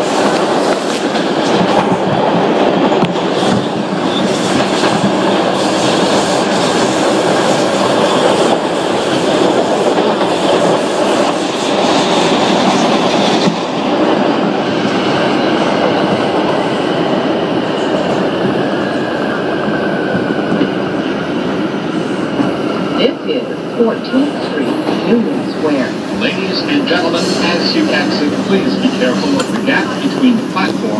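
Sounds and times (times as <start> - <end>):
train rumble inside car: 23.9 - 30.9.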